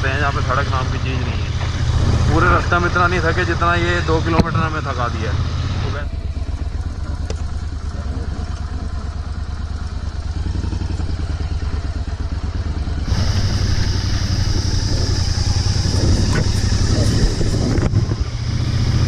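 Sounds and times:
motorcycle engine running: 0.0 - 19.0
hiss: 13.0 - 19.0.

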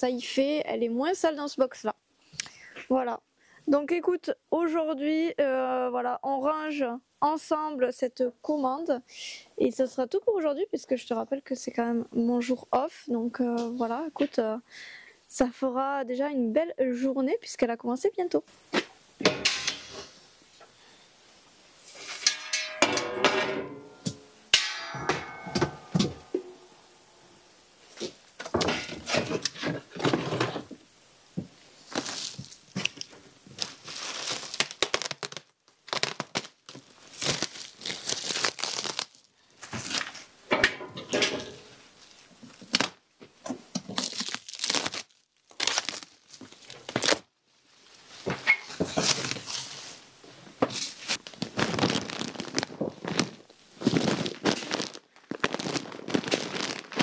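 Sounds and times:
plastic sacks crinkling: 31.8 - 40.3, 42.0 - 43.0, 43.8 - 50.0, 50.7 - 57.0
sacks knocking down: 51.3 - 57.0.

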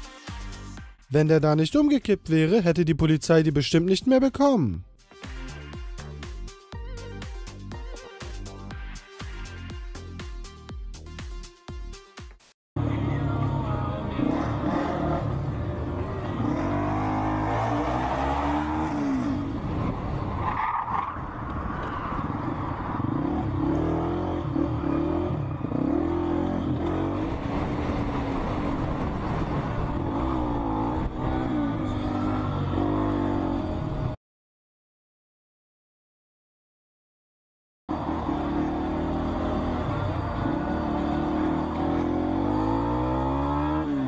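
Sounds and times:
motorcycle engine revving: 12.8 - 20.3, 21.9 - 34.2, 37.9 - 44.0.

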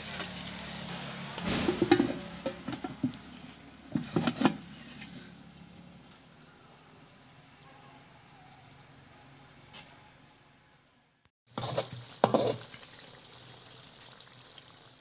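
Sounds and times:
faint sizzle: 11.5 - 15.0.

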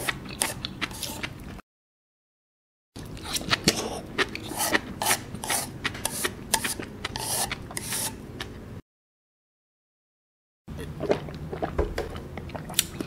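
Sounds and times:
wet mouth sounds: 3.0 - 8.5, 10.7 - 13.0
chewing with crackling clicks: 11.1 - 13.0.

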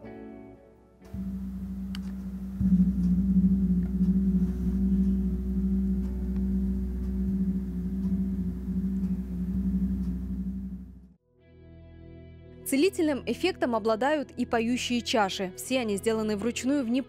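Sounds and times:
gong stroke: 1.2 - 11.1
gong humming: 1.2 - 11.2.

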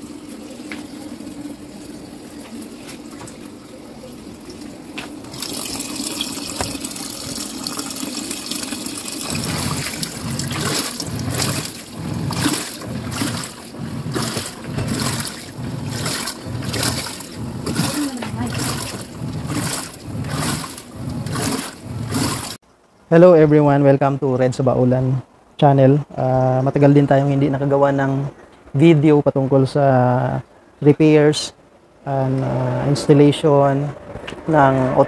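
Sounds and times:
washing machine sloshing water: 0.0 - 22.6
water pouring into washer tub: 0.0 - 22.6.

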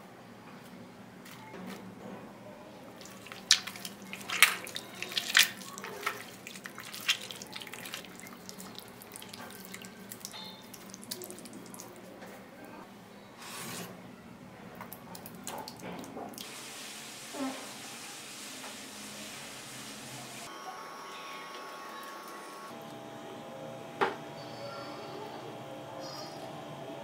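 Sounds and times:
sharp wet splats: 3.0 - 11.9
hand squelching tomatoes: 3.0 - 12.2.

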